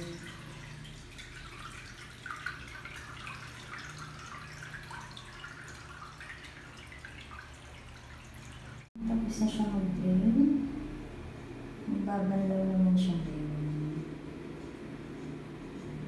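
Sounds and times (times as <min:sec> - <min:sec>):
water trickling and splashing: 0:00.0 - 0:09.0
washing machine hum: 0:00.0 - 0:16.0.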